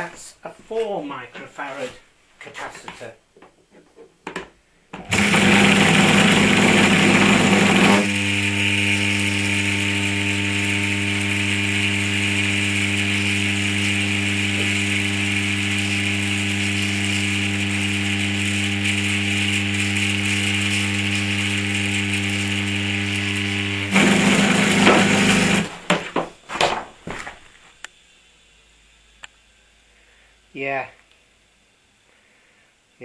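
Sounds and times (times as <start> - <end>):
electric motor humming: 5.1 - 26.0.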